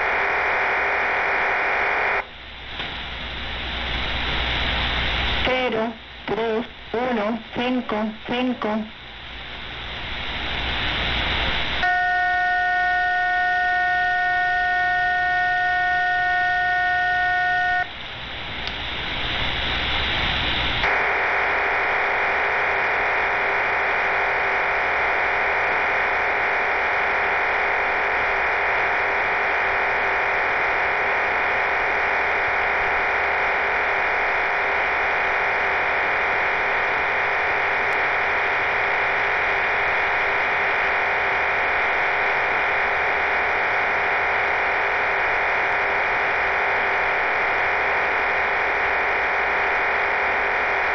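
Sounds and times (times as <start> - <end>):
dense data hiss: 0.0 - 50.9
radio hiss: 0.0 - 50.9
faint steady tone: 6.9 - 20.9
chord of steady tones: 11.8 - 17.9.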